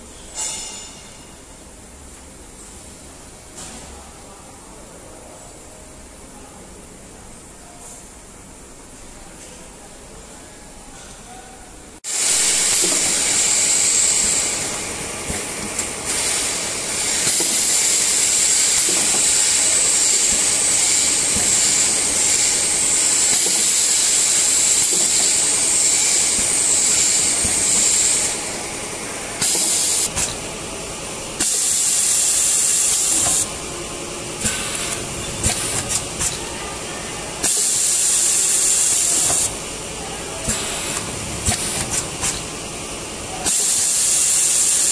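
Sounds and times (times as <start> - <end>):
compressed air hissing: 12.1 - 30.4, 31.4 - 33.5, 34.4 - 36.4, 40.5 - 42.5.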